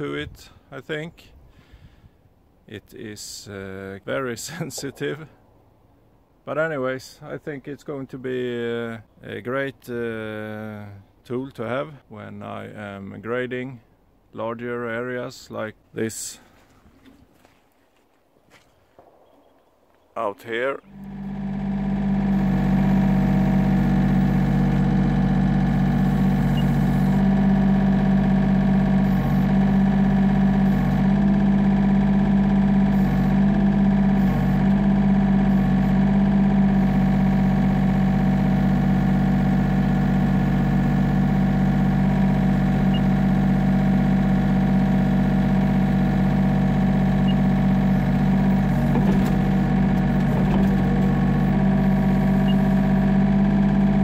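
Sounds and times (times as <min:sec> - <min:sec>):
excavator diesel engine running: 0:20.8 - 0:54.0.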